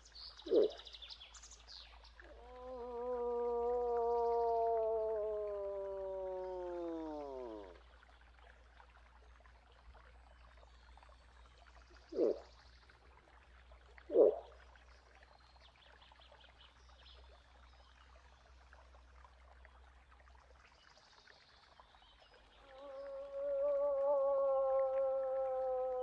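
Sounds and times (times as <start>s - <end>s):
moose calls: 12.2s - 12.4s.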